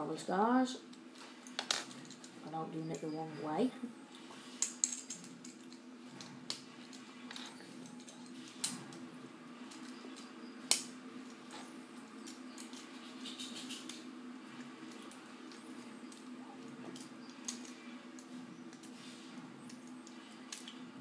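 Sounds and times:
low steady hum: 0.0 - 21.0
plastic blocks clicking together: 16.9 - 19.0, 19.7 - 20.8.

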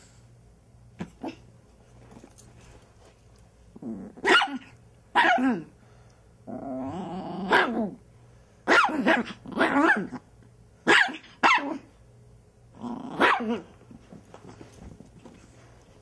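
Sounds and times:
puppy growling: 3.7 - 4.3, 6.5 - 8.0, 12.7 - 13.6
puppy barking: 4.2 - 5.6, 8.7 - 10.2, 10.8 - 11.8, 13.2 - 13.7.

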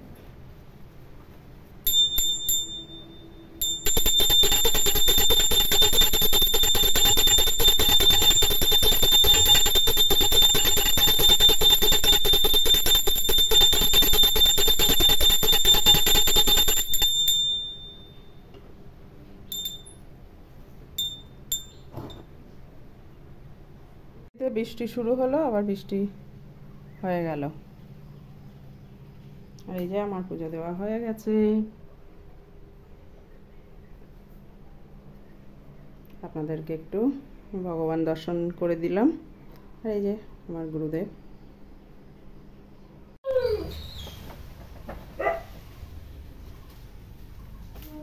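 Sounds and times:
hand bell ringing: 1.9 - 18.4, 19.5 - 20.0, 21.0 - 21.9.

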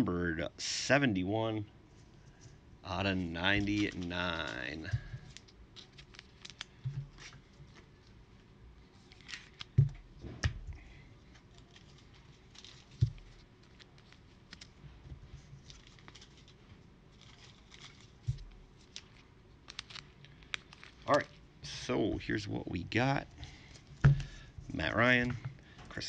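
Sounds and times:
cards rustling and sliding: 2.5 - 8.0, 8.9 - 9.8, 11.2 - 14.8, 15.4 - 22.2.

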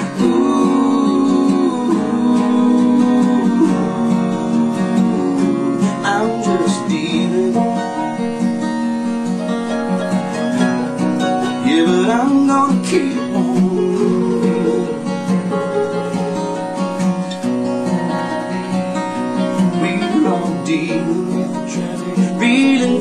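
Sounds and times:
acoustic guitars strumming: 0.0 - 23.0.

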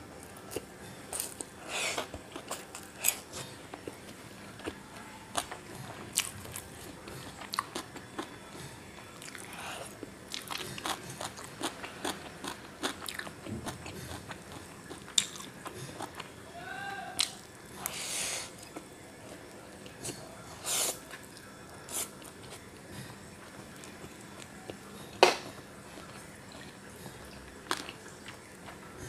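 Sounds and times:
chewing noodles: 0.5 - 16.3.

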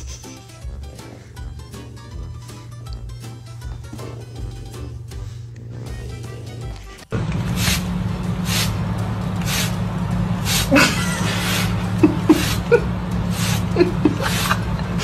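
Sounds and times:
puppy noises: 0.0 - 7.8
steady low hum: 0.0 - 15.0
spray bottle spritzing: 7.5 - 8.8, 9.4 - 9.8.

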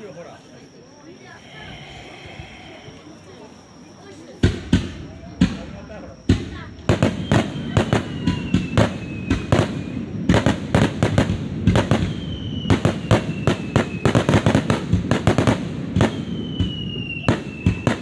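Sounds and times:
firework whistles: 0.0 - 18.0
fireworks bangs: 4.0 - 18.0.

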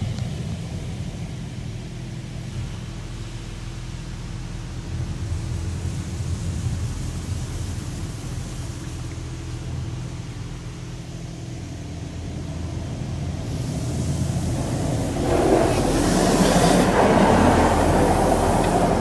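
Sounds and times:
steady low hum: 0.0 - 19.0
water spray on car: 4.2 - 19.0.

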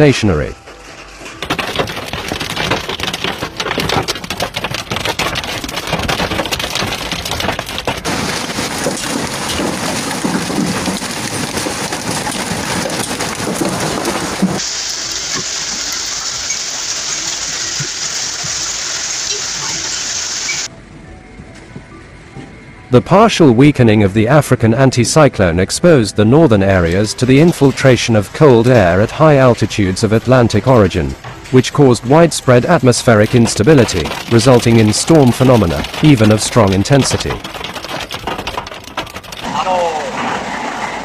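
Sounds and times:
hail and heavy rain pelting: 1.1 - 20.7, 32.4 - 41.0.

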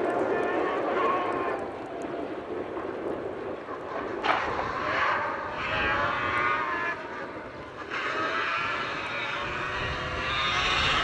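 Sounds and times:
sharp crack: 3.7 - 5.3
buggy engine revving: 4.2 - 11.0.

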